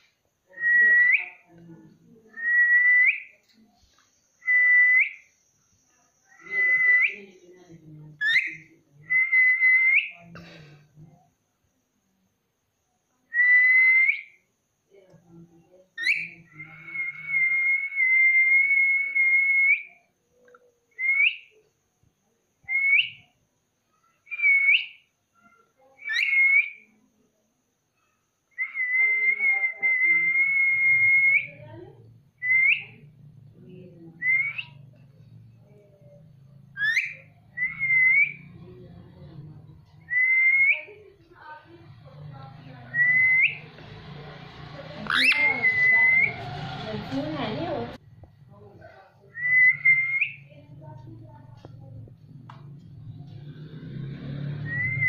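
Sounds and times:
long level parakeet whistles: 0:24.3 - 0:25.0
short upward swooping whistles: 0:54.0 - 0:55.0.

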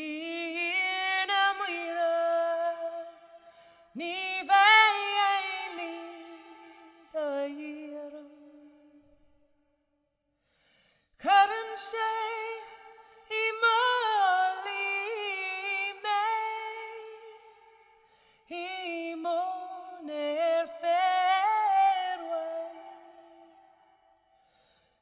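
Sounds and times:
woman singing unaccompanied: 0:00.0 - 0:03.3, 0:03.9 - 0:08.7, 0:11.2 - 0:17.6, 0:18.5 - 0:23.6.

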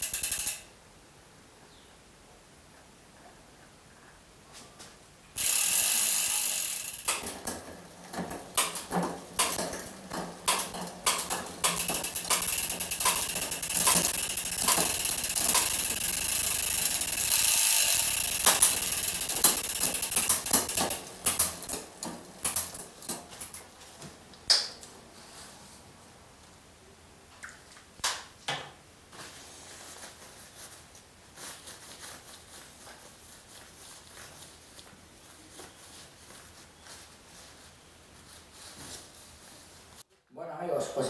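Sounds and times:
bicycle chain running over cassette: 0:00.0 - 0:00.6, 0:05.4 - 0:22.9
freehub ratchet clicks: 0:00.0 - 0:00.7, 0:05.4 - 0:07.6, 0:08.5 - 0:22.8.

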